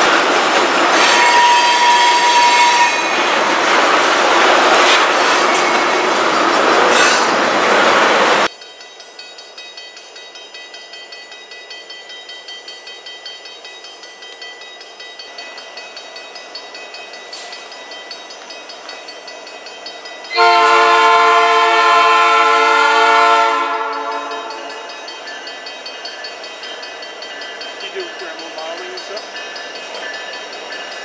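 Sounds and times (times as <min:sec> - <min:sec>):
rolling train noise: 0:00.0 - 0:31.0
train air horn chord: 0:20.4 - 0:24.6.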